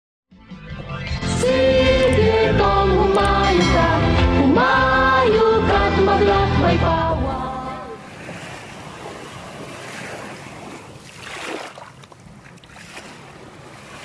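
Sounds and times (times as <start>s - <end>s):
small waves washing on shore: 7.9s - 14.0s.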